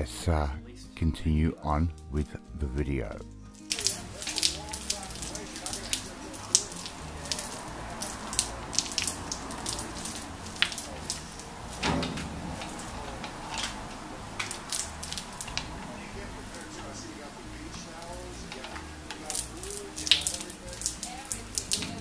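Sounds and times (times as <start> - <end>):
spiked roller piercing wax cappings: 3.5 - 22.0.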